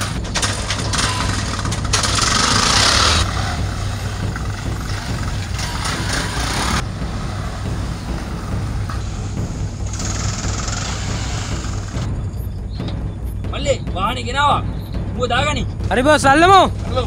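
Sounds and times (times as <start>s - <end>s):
auto-rickshaw engine running: 0.0s - 13.6s.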